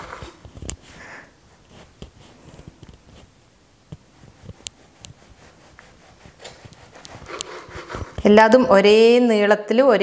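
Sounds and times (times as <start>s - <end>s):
bread knife cutting bread: 4.5s - 8.2s.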